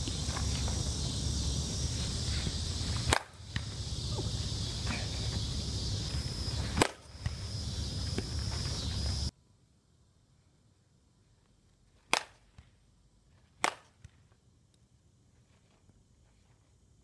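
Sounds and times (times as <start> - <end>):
steady background hiss: 0.0 - 17.0
bat cracking against ball: 2.3 - 4.3, 4.9 - 8.8, 12.1 - 12.7, 13.6 - 14.2.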